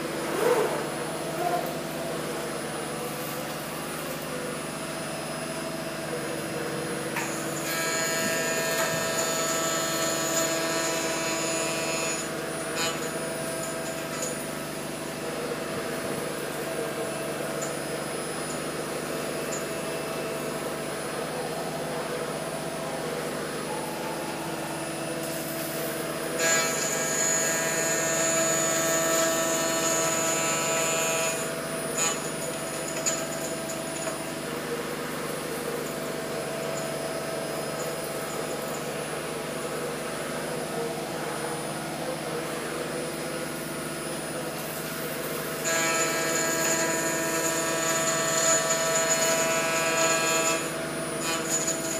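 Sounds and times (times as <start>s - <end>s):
router spindle whining: 0.0s - 15.0s
high squeal of milling: 4.6s - 15.0s, 17.0s - 39.3s, 45.4s - 51.9s.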